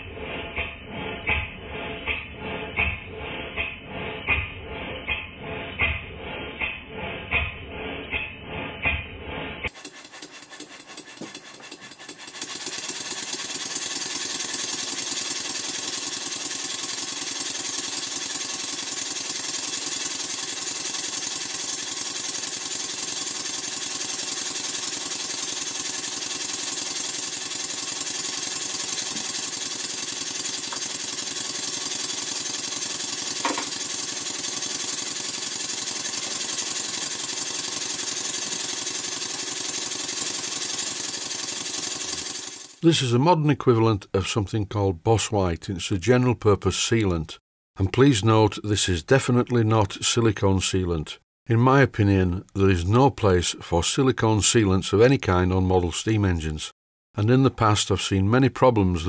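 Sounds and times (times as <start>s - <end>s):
model steam engine running fast: 9.7s - 42.9s.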